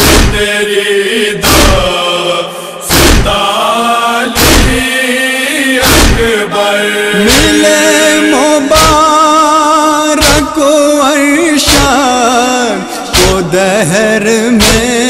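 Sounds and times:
chest-beating thumps: 0.0s - 0.5s, 1.4s - 1.9s, 2.9s - 3.4s, 4.4s - 4.8s, 5.8s - 6.3s, 7.3s - 7.6s, 8.7s - 9.2s, 10.2s - 10.6s, 11.7s - 12.1s, 13.1s - 13.7s, 14.6s - 15.0s
voices chanting long notes: 0.0s - 9.6s.

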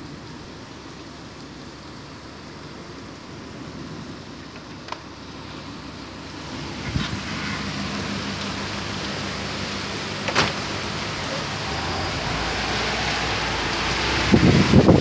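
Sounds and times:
heavy rain hissing: 0.0s - 15.0s
bus diesel engine running: 5.1s - 15.0s
thump: 10.3s - 10.6s.

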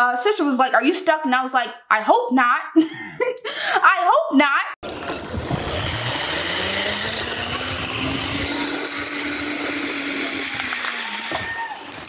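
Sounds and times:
zipline pulleys whirring on cable: 4.8s - 12.0s.

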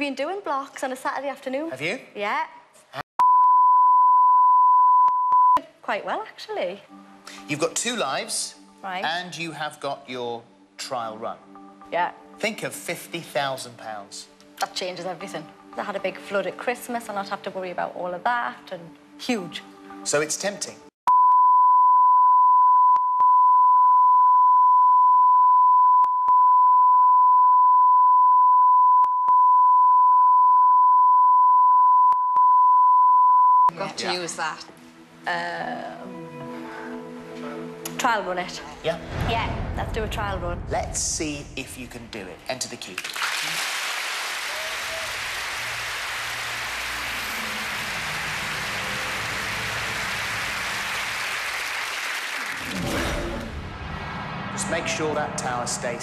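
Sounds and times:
continuous test tone beep: 3.2s - 5.6s, 21.1s - 33.7s
studio audience applauding: 42.6s - 53.6s.

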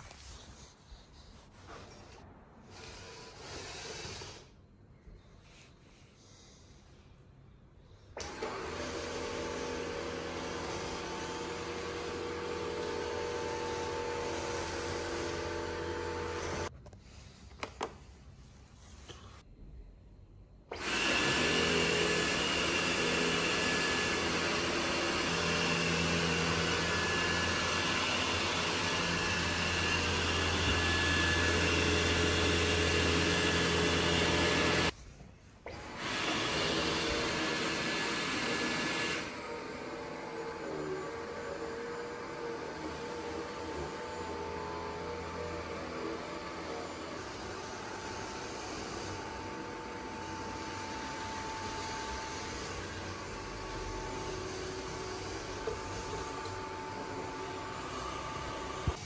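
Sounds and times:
robot vacuum running: 8.2s - 16.7s, 20.7s - 35.0s, 35.7s - 59.0s.

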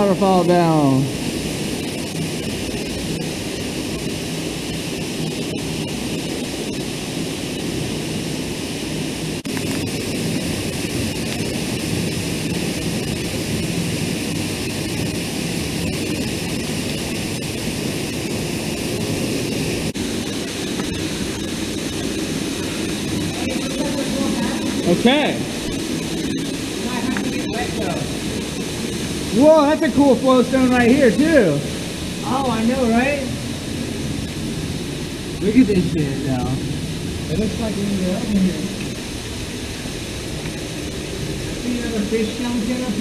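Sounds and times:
waterfall rushing: 20.0s - 43.0s.

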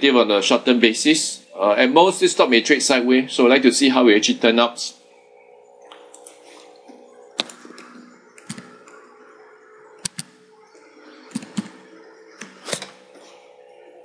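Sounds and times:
faint steady hum: 0.0s - 14.0s
mouse and keyboard clicks: 7.4s - 9.0s, 10.0s - 10.4s, 11.3s - 11.8s.

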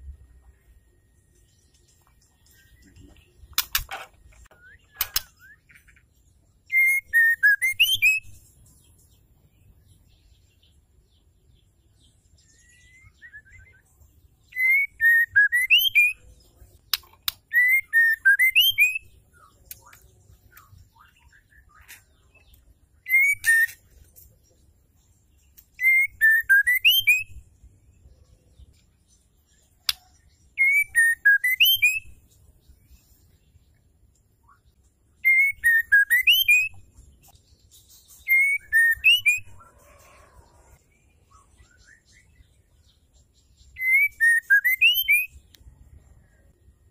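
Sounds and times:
sharp clicks: 3.5s - 4.1s
bird singing whistled phrase: 6.7s - 8.3s, 12.6s - 13.9s, 14.5s - 16.2s, 17.5s - 19.1s, 23.0s - 23.8s, 25.8s - 27.4s, 30.6s - 32.2s, 35.2s - 36.8s, 38.2s - 39.6s, 43.8s - 45.4s.

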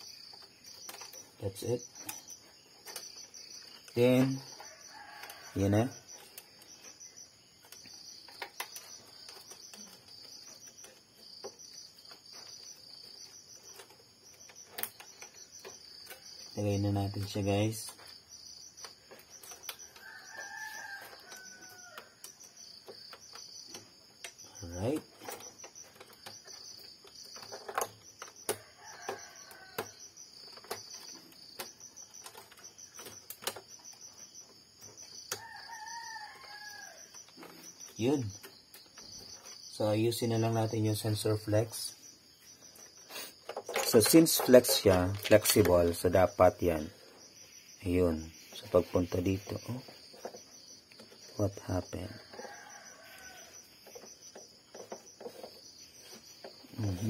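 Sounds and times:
faint cricket chirping: 0.0s - 57.0s
rooster crowing: 4.6s - 6.0s, 20.0s - 22.2s, 28.6s - 30.0s, 35.4s - 37.1s, 52.1s - 53.7s
plastic parts clicking: 43.4s - 46.0s.

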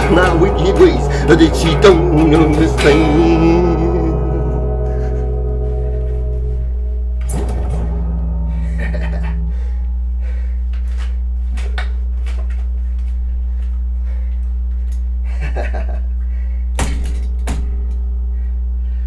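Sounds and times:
electrical hum from guitar amp: 0.0s - 19.0s
guitar handling clicks and knocks: 7.2s - 8.2s
guitar knocking on stand: 7.2s - 8.2s.

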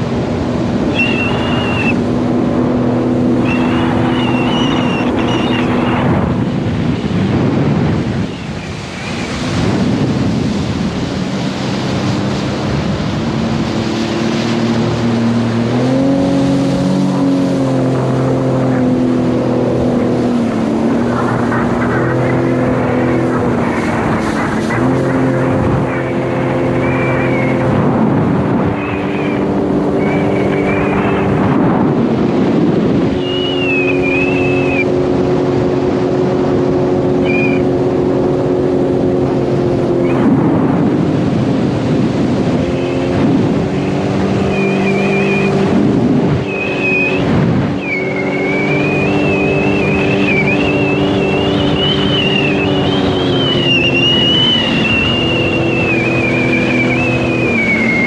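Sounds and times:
personal watercraft engine: 0.0s - 58.0s
rush of water and wind: 0.0s - 58.0s
high wavering whine: 0.6s - 6.5s, 42.6s - 58.0s.

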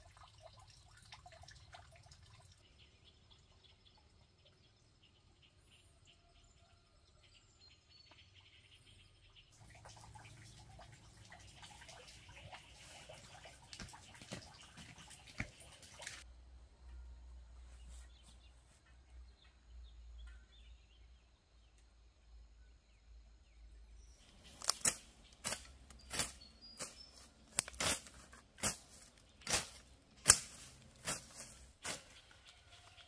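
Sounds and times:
faint outdoor background: 0.0s - 33.0s
hand tool chopping grass: 24.4s - 32.6s.

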